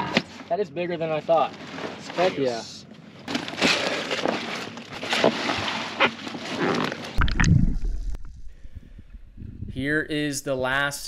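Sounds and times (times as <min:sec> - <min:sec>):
fish and ice rustling in bag: 0:03.2 - 0:07.2
microphone handling rumble: 0:07.1 - 0:10.0.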